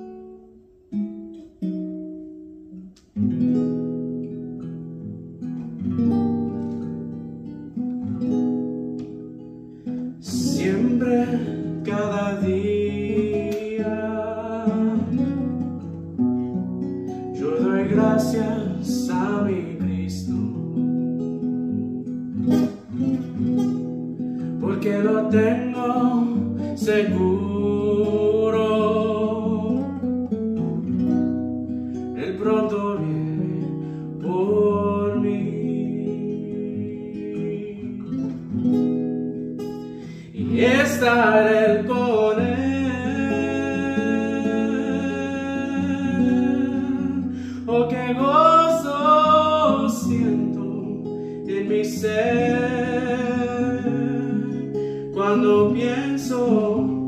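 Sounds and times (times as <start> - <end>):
acoustic guitar strumming: 0.0 - 57.0
person singing: 10.2 - 15.4, 17.4 - 20.6, 24.6 - 30.0, 32.2 - 38.5, 40.0 - 57.0.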